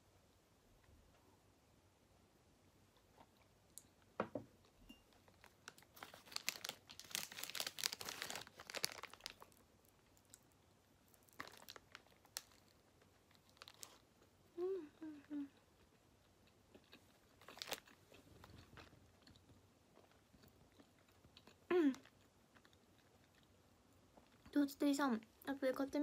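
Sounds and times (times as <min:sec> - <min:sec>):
knock: 0:04.2 - 0:04.5
plastic wrapper crinkling: 0:05.2 - 0:10.5, 0:11.1 - 0:14.0, 0:17.4 - 0:18.9.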